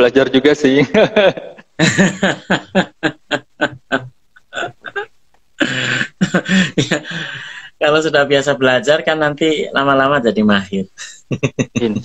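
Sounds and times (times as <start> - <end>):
men laughing: 0.8 - 7.6, 11.0 - 12.0.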